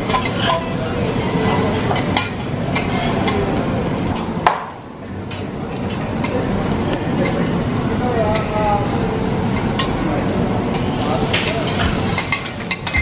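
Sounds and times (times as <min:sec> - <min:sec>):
metal spatula scraping griddle: 0:00.0 - 0:03.5
food sizzling: 0:00.0 - 0:13.0.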